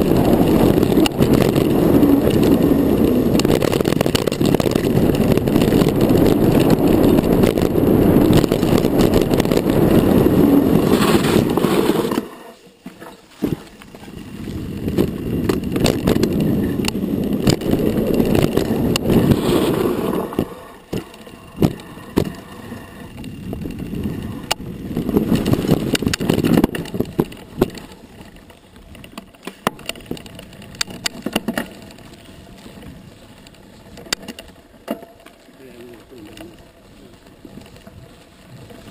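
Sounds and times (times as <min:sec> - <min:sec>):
wind buffeting microphone: 0:00.0 - 0:12.3, 0:13.4 - 0:29.2
bike clicks and rattles: 0:00.0 - 0:38.9
tyre rumble on dirt: 0:00.0 - 0:38.9.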